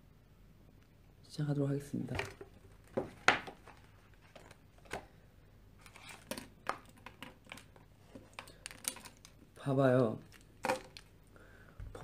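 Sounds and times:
paper rustling: 5.8s - 9.4s
pens clicking and knocking: 10.3s - 11.1s.

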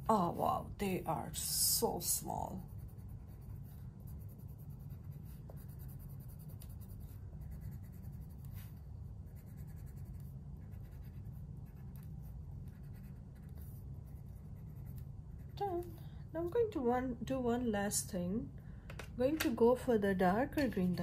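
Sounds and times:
steady low hum: 0.0s - 21.0s
pencil scratching on paper: 1.4s - 15.9s.

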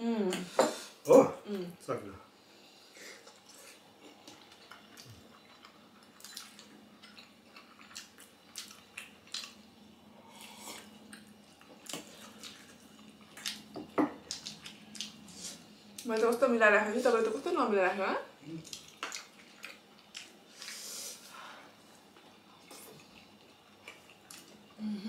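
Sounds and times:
wet chewing: 3.3s - 9.6s, 10.4s - 16.1s, 18.6s - 20.8s.

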